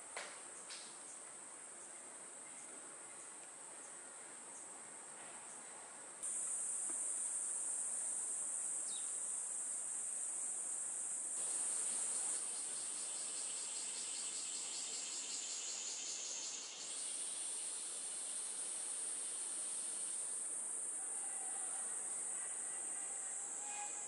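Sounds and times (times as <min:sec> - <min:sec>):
cicada chorus drone: 0:06.2 - 0:24.0
pulsing insect call: 0:11.4 - 0:24.0.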